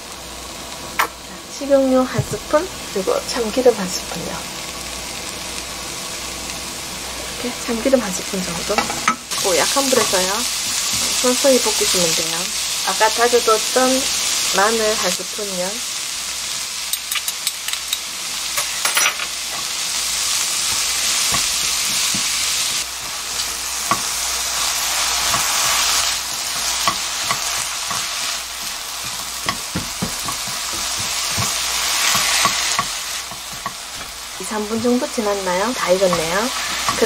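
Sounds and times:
vegetables sizzling in oil: 0.0s - 37.0s
spatula tapping and scraping pan: 20.7s - 22.8s, 23.8s - 24.2s, 26.5s - 35.0s, 36.1s - 37.0s.

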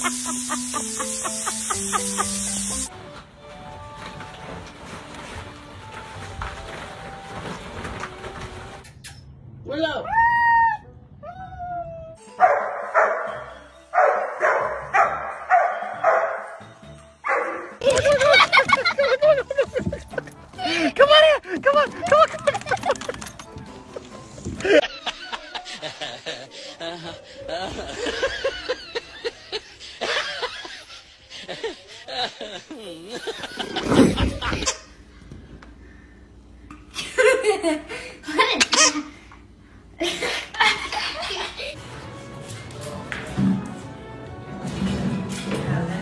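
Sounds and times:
person laughing: 0.0s - 2.6s, 17.8s - 23.3s, 23.9s - 34.8s.

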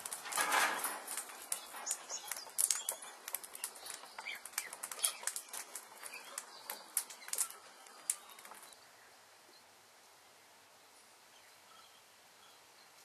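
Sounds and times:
faint outdoor hiss: 0.0s - 13.0s
bird chirps: 1.4s - 9.7s.

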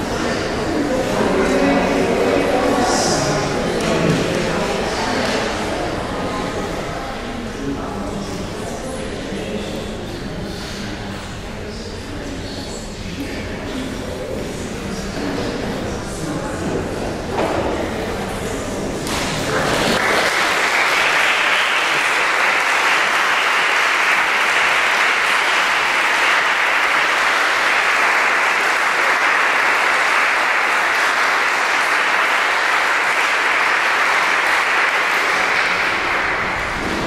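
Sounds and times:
audience applauding: 19.5s - 37.0s.

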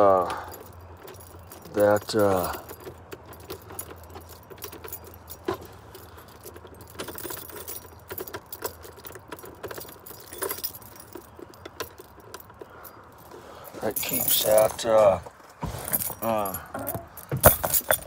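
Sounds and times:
keys jangling: 0.0s - 15.2s, 15.8s - 18.0s.

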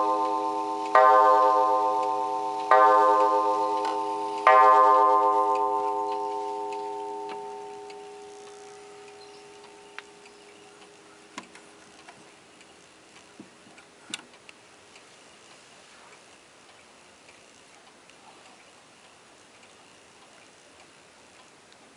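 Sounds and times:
wall clock gong striking: 0.0s - 10.3s
clock ticking: 0.0s - 12.8s.

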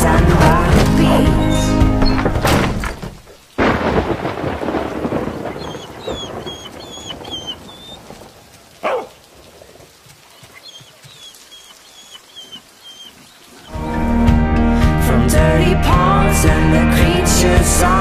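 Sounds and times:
thunderclap rumbling: 0.0s - 10.0s
steady rain falling: 0.0s - 14.9s.

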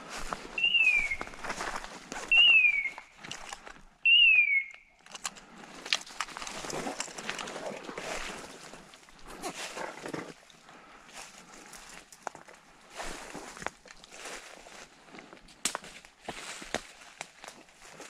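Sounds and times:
footsteps through undergrowth: 0.0s - 3.9s, 5.4s - 18.0s
falling whistle notes: 0.6s - 1.3s, 2.3s - 3.1s, 4.0s - 4.8s
sharp cracks of twigs: 4.7s - 7.5s.

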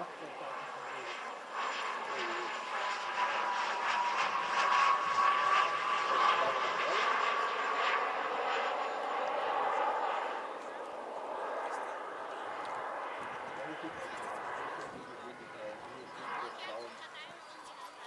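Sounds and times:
model jet engines whining: 0.0s - 18.0s.

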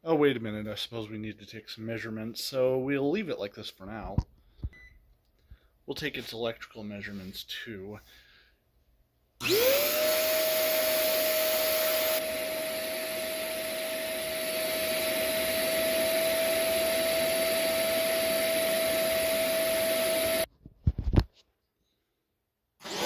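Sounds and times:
vacuum cleaner motor whine: 9.4s - 20.5s.

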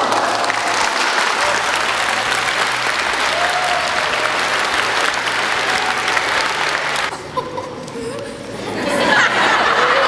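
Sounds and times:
children applauding: 0.0s - 7.1s.

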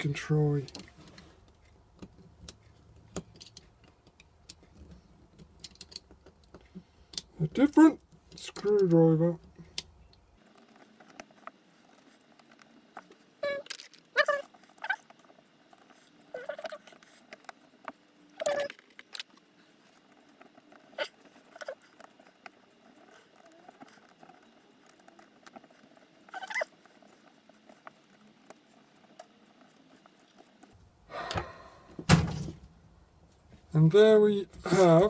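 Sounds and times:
screwdriver clicks and squeaky scrapes: 10.5s - 26.9s.

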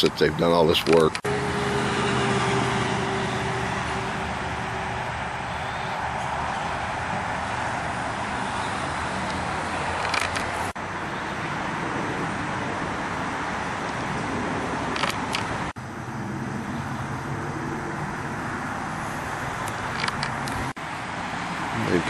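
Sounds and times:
outdoor background rush: 0.0s - 22.0s
handling clicks: 0.8s - 1.3s, 10.0s - 10.6s, 14.9s - 15.5s, 19.6s - 20.6s.

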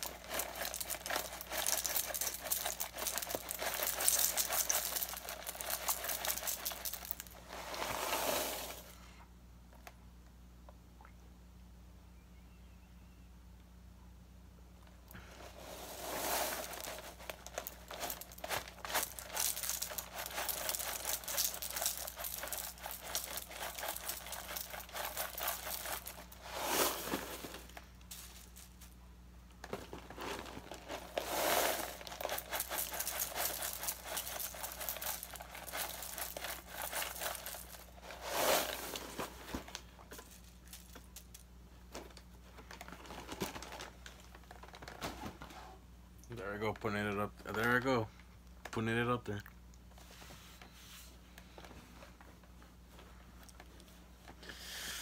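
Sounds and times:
plastic bag crinkling: 0.0s - 8.0s, 15.9s - 29.0s, 29.6s - 41.4s, 42.1s - 45.1s
cereal pouring into a bowl: 0.0s - 8.9s, 15.6s - 29.0s, 29.7s - 41.4s.

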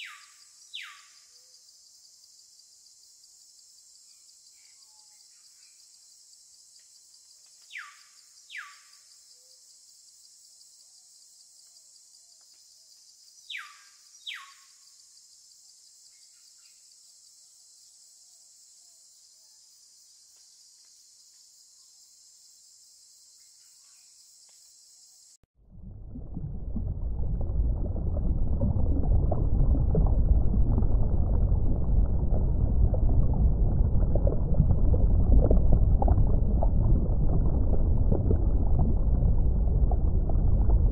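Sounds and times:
bird whistled calls: 0.0s - 1.1s, 7.7s - 8.8s, 13.5s - 14.6s
insect chorus: 0.0s - 25.5s
underwater rumble of moving water: 25.6s - 40.9s.

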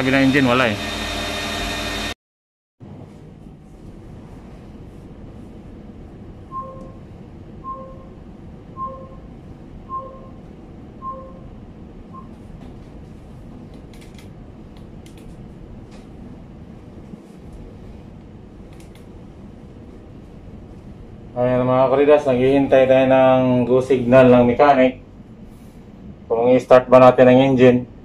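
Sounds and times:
low machinery hum: 2.8s - 28.0s
two-note electronic beeps: 6.5s - 7.0s, 7.6s - 8.2s, 8.8s - 9.3s, 9.9s - 10.4s, 11.0s - 11.5s.

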